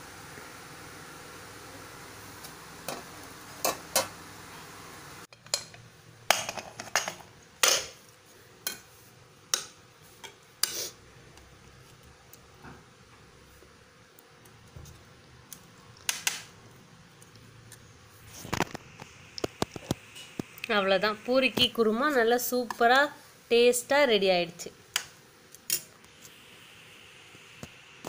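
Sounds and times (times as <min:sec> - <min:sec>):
oil sizzling: 0:00.0 - 0:23.5.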